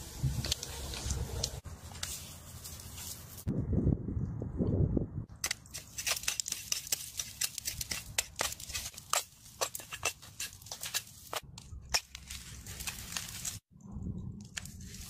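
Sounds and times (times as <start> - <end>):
knife scraping salt crust: 5.5 - 11.4.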